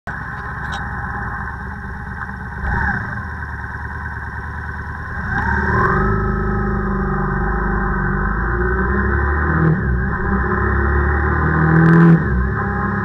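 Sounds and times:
vehicle engine idling and revving: 0.0 - 13.0.

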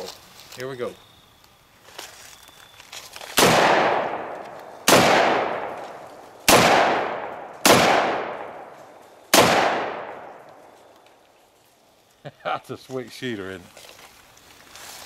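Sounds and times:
rifle shots echoing: 3.4 - 10.7.

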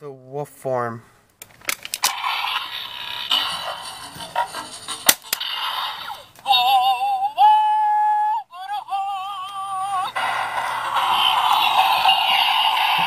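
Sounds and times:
toy speaker music: 8.8 - 13.0.

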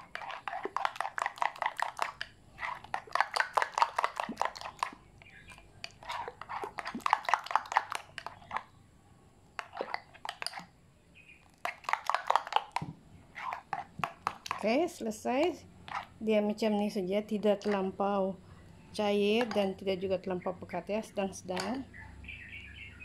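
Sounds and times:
batter squelching by hand: 0.0 - 8.7, 9.6 - 10.7, 11.4 - 14.9, 15.8 - 16.2.

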